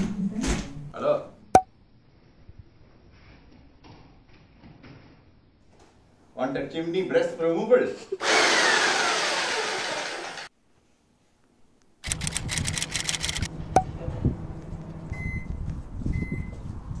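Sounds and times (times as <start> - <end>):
electric demolition hammer: 8.2 - 10.5
rapid clicking: 12.0 - 13.5.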